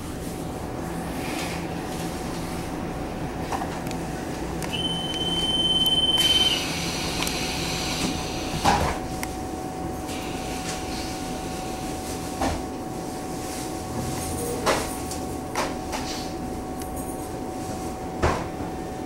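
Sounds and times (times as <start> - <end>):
train equipment humming: 0.0 - 12.1
high steady beep: 4.7 - 6.6
train doors closing with hiss: 4.7 - 9.2, 10.0 - 12.7.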